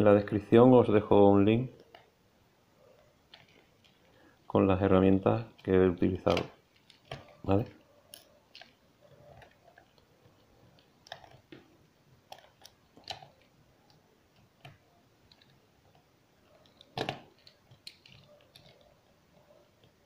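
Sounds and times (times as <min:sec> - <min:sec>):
screwdriver and plastic clicks: 0:12.3 - 0:18.9.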